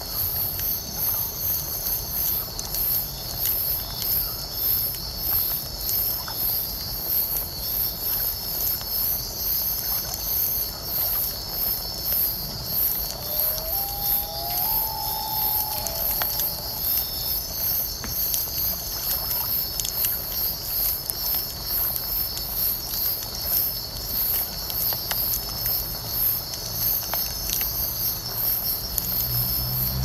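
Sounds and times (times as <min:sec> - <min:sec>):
insects chirping: 0:10.6 - 0:30.0
fire crackling and popping: 0:11.2 - 0:29.1
bonfire rumbling: 0:11.3 - 0:27.9
low insect buzz: 0:13.1 - 0:17.4.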